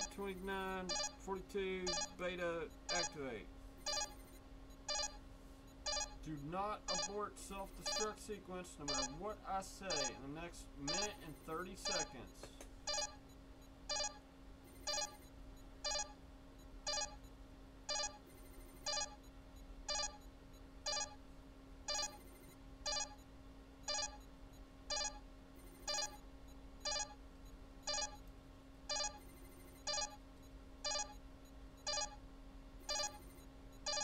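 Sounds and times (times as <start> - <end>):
short electronic beeps: 0.0 - 5.2, 5.8 - 8.2, 8.8 - 16.2, 16.8 - 17.3, 17.9 - 19.3, 19.9 - 21.2, 21.9 - 23.3, 23.9 - 24.3, 24.9 - 26.2, 26.8 - 27.2, 27.8 - 28.2, 28.9 - 31.2, 31.8 - 32.2, 32.8 - 34.0
steady low hum: 0.0 - 34.0.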